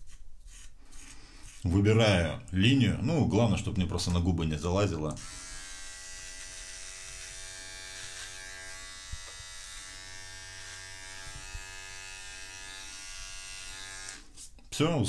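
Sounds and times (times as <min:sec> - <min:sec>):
electric beard trimmer running: 0:05.2 - 0:14.3.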